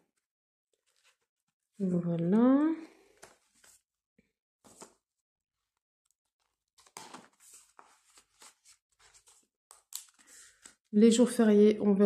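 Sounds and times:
plastic sleeves and paper pages rustling: 0:00.1 - 0:03.9, 0:04.6 - 0:05.0, 0:06.3 - 0:11.2.

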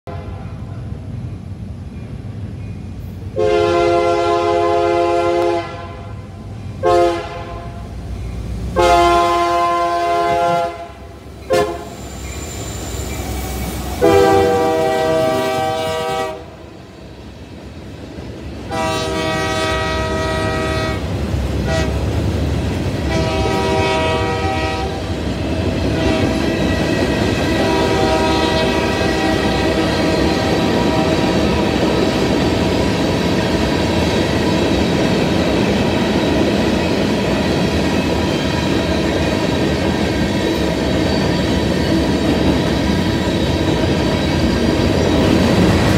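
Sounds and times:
train horn blasts: 0:00.0 - 0:00.8, 0:03.4 - 0:08.0, 0:08.7 - 0:12.0, 0:13.9 - 0:16.6, 0:18.7 - 0:22.0, 0:23.0 - 0:25.1, 0:25.9 - 0:26.7, 0:27.4 - 0:31.9
freight cars rumbling and clattering: 0:24.9 - 0:45.9.

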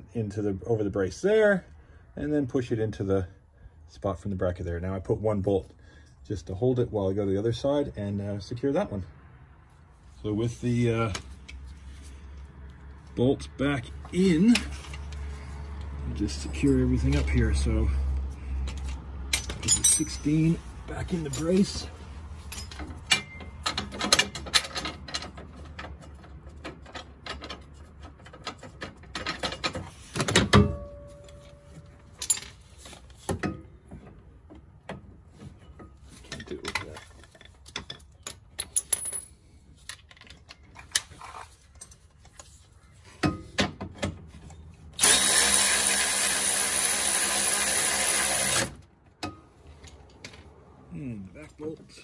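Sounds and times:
metal clinks of tools: 0:18.8 - 0:20.6, 0:22.5 - 0:24.1
cordless ratchet running: 0:45.0 - 0:48.7.

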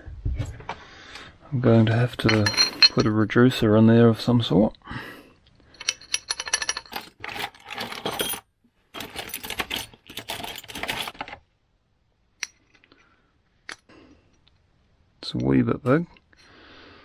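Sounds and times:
small metal parts clinking: 0:02.2 - 0:03.2, 0:05.7 - 0:11.4.

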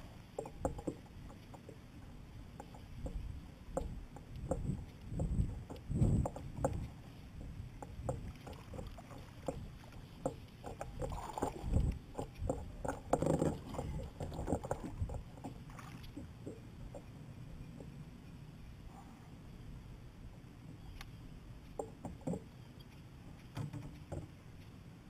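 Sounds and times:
knocks and bumps on kayak: 0:02.6 - 0:06.9, 0:07.8 - 0:16.0, 0:23.5 - 0:24.3.

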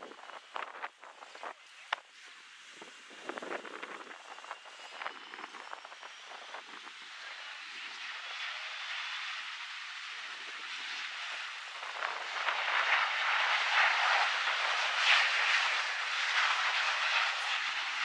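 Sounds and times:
jet engine rushing: 0:00.0 - 0:18.0.

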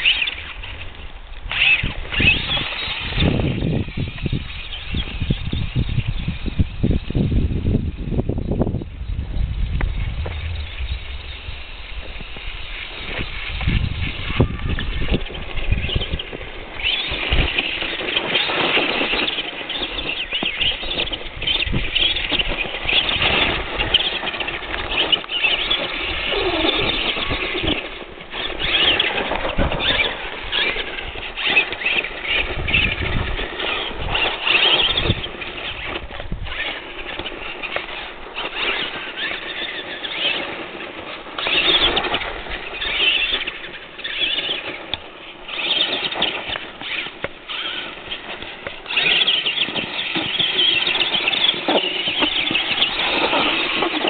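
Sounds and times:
toy truck electric motors whining: 0:00.0 - 0:07.2, 0:12.3 - 0:54.0.

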